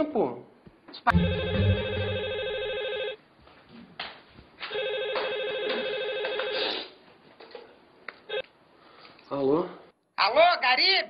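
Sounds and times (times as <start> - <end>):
telephone ringing: 1.1 - 3.2, 4.7 - 6.7.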